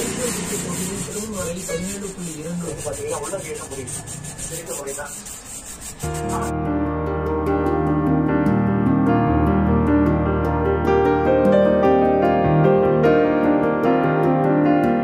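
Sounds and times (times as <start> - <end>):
hands sanding metal: 0.0 - 6.5
piano music: 6.0 - 15.0.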